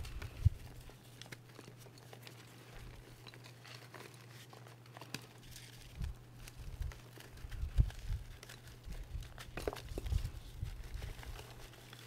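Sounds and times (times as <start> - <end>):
chalk crumbling in hands: 0.0 - 12.0
low steady hum: 0.0 - 12.0.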